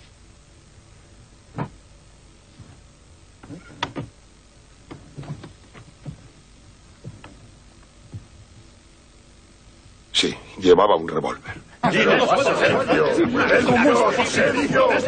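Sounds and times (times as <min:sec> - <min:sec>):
low room noise: 0:00.0 - 0:15.0
short knocks and shuffles: 0:04.9 - 0:06.4, 0:07.0 - 0:08.7.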